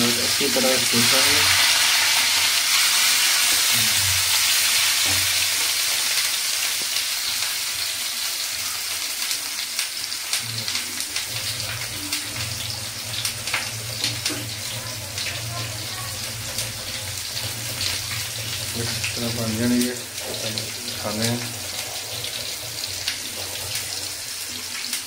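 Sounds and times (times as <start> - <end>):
food frying in hot oil: 0.0 - 25.0
oil pops and crackles: 13.2 - 14.5.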